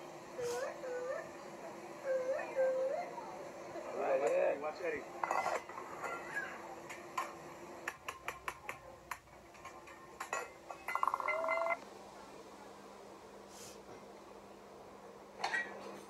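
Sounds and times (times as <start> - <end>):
metal utensils clinking on griddle: 5.2 - 6.4, 9.6 - 11.7, 15.4 - 15.9.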